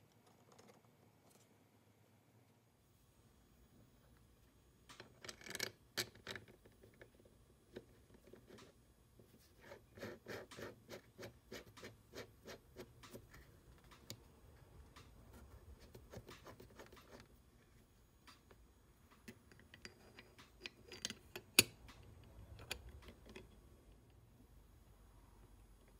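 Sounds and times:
regular metal ticks: 10.3 - 17.3, 18.2 - 24.2
small metal clicks and scrapes: 19.1 - 24.2.

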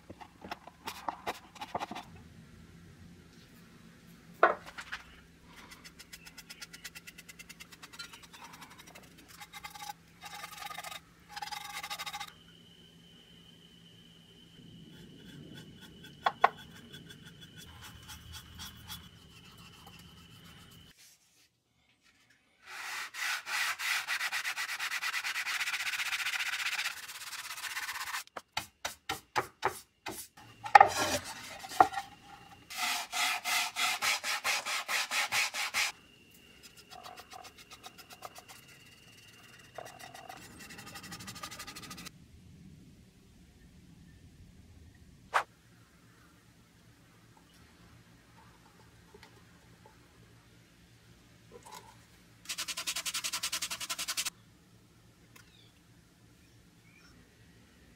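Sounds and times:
sandpaper rubbing on wood: 22.7 - 28.2, 32.7 - 35.9, 52.5 - 54.3.

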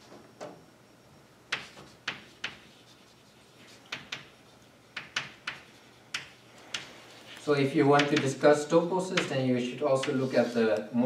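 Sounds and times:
chalk tapping on a blackboard: 1.5 - 7.0, 7.9 - 8.4, 9.1 - 9.4, 10.0 - 10.4.

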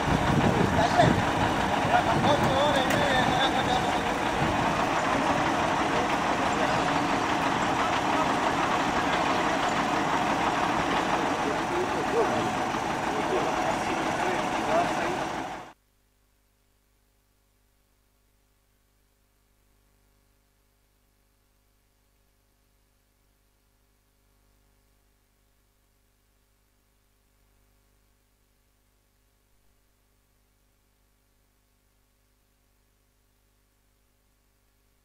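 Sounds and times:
truck diesel engine idling: 0.0 - 15.8
faint low hum and hiss: 15.8 - 35.0.

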